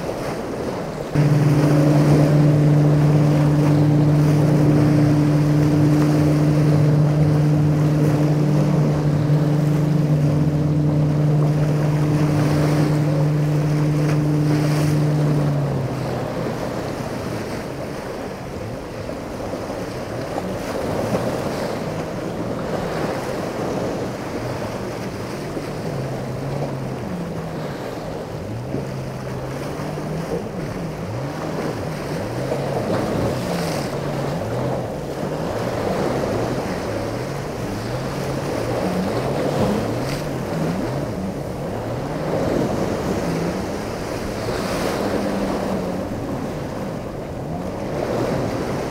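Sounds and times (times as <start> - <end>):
motorboat engine idling: 0.0 - 48.9
waves slapping against rocks: 0.0 - 48.9
wind buffeting microphone: 0.0 - 48.9.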